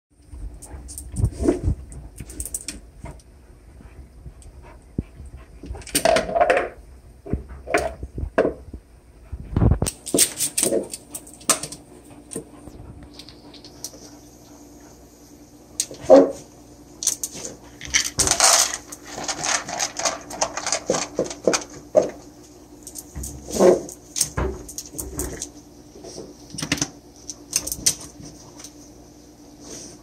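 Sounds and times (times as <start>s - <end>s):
kibble in plastic scoop: 17.0s - 22.2s.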